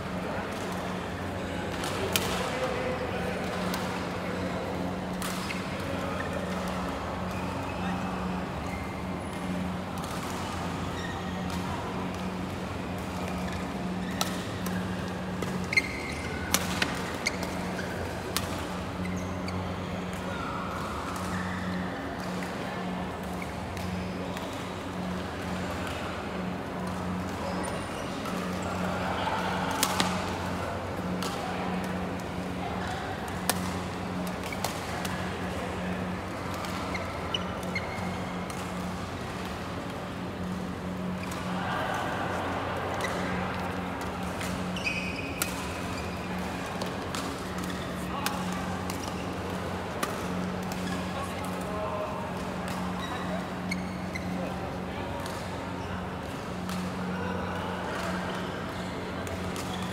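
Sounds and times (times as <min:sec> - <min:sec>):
hall background noise: 0:00.0 - 0:59.9
shoes squeaking on court floor: 0:07.2 - 0:09.8, 0:10.6 - 0:11.6, 0:13.4 - 0:18.0, 0:18.7 - 0:20.2, 0:36.0 - 0:39.0, 0:44.4 - 0:49.4, 0:52.2 - 0:57.1
shoe squeak: 0:15.6 - 0:16.4, 0:19.0 - 0:19.9, 0:37.3 - 0:38.3, 0:44.7 - 0:45.4, 0:53.0 - 0:54.4.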